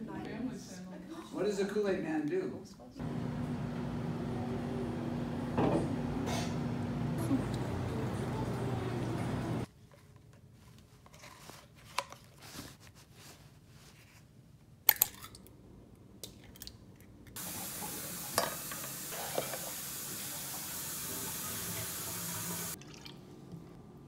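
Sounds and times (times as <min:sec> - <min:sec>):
eggs sizzling in a pan: 0:17.4 - 0:22.8.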